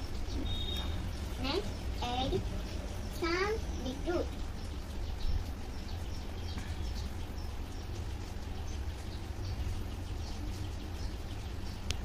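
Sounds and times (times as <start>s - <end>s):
high bird chirps: 0.0s - 2.4s
low room rumble: 0.0s - 12.0s.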